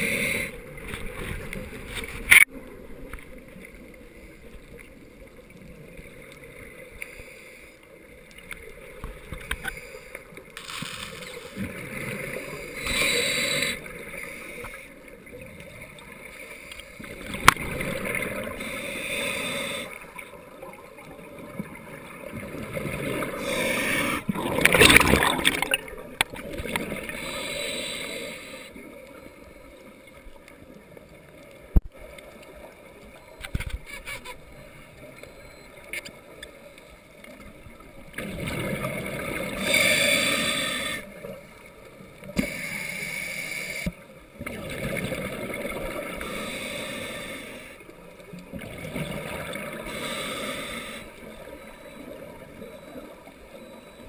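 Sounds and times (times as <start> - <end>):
underwater exhalation bubbles gurgling: 20.9 - 27.4, 38.1 - 40.9, 44.4 - 46.4, 48.5 - 50.2.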